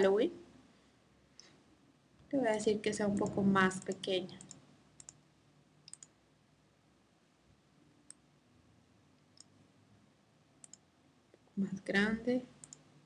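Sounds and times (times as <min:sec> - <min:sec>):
computer mouse clicks: 0:02.5 - 0:05.2, 0:05.8 - 0:06.2, 0:10.6 - 0:10.9, 0:12.6 - 0:12.9.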